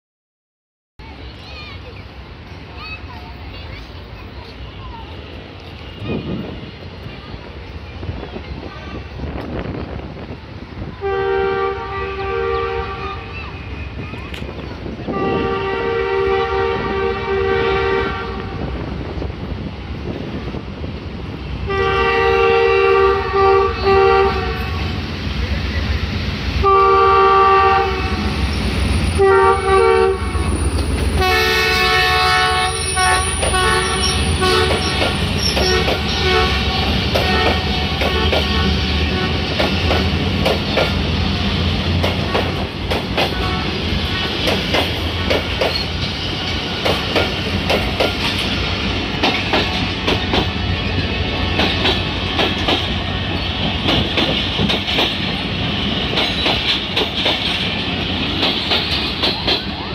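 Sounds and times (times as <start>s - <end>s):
train passing rumble: 1.0s - 59.9s
locomotive horn blasts: 11.0s - 13.3s, 15.1s - 18.7s, 21.7s - 24.9s, 26.6s - 28.3s, 29.2s - 30.5s, 31.2s - 39.6s, 43.3s - 43.8s
wheel squeal: 32.7s - 35.9s
wheels clacking over rail joints: 32.8s - 59.9s.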